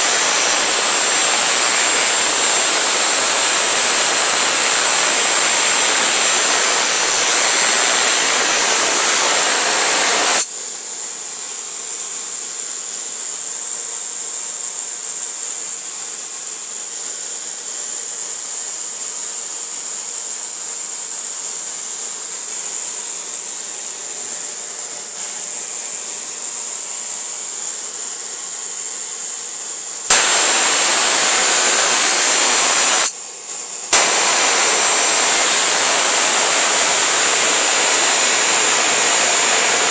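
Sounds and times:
electric spark gap firing: 0:00.0 - 0:10.5, 0:25.2 - 0:39.9
steady hiss: 0:00.0 - 0:39.9.

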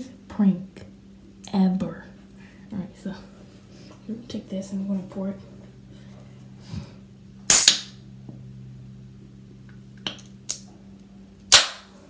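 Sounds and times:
steady low hum: 0:00.0 - 0:12.0
can hissing: 0:07.5 - 0:07.9.

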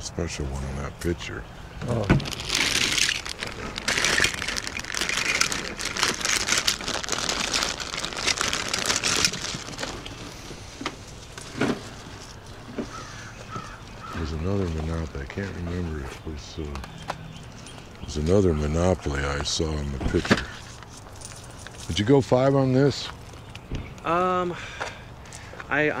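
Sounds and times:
crinkly rustling: 0:01.9 - 0:22.2.

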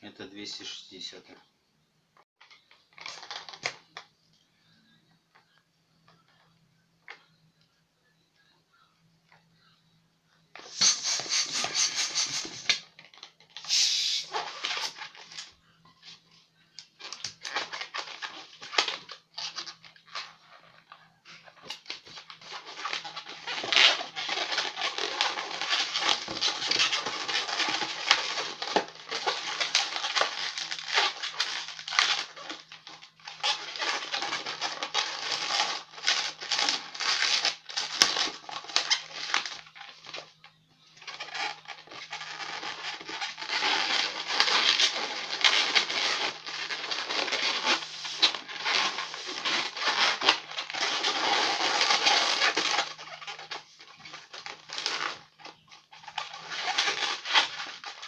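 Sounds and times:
balloon rubbing and squeaking: 0:10.6 - 0:16.3, 0:17.0 - 0:40.3, 0:41.0 - 0:58.0.

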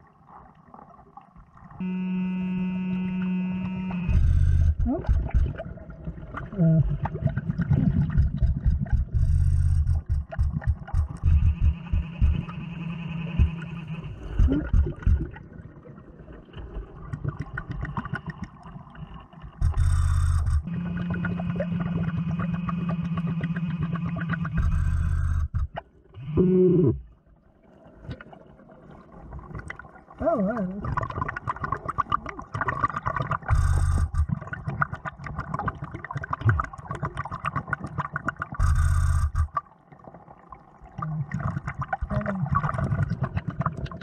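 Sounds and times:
steady hum: 0:01.8 - 0:05.6, 0:08.0 - 0:15.3, 0:19.5 - 0:27.1, 0:33.5 - 0:34.3, 0:38.6 - 0:39.6
gravel clicking and scraping underwater: 0:04.1 - 0:12.6, 0:13.4 - 0:26.0, 0:30.8 - 0:44.0.

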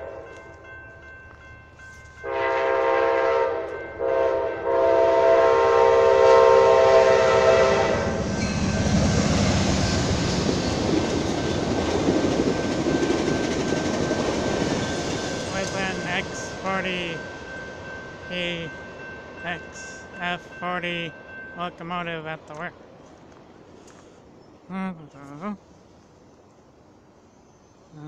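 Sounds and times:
locomotive horn blasts: 0:02.2 - 0:08.2
train wheels rumbling on rails: 0:07.3 - 0:20.6.

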